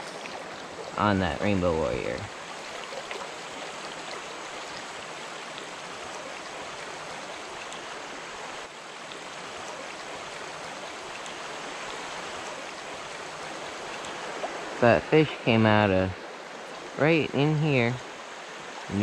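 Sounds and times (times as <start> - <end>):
creek water rushing over rocks: 0.0 - 19.0.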